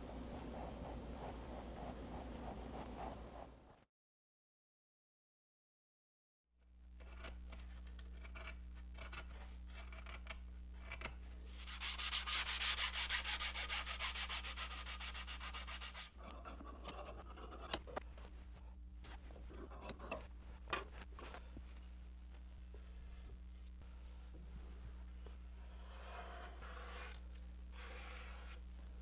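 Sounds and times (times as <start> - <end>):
steady low hum: 0.0 - 3.8, 6.7 - 29.0
hand sanding wood: 11.5 - 16.1.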